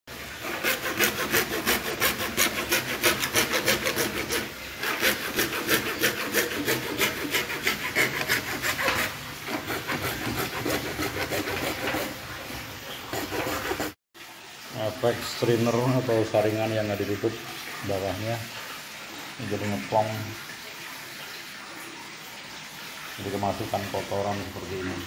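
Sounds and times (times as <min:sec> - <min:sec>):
hand saw cutting plastic pipe: 0:00.1 - 0:14.0.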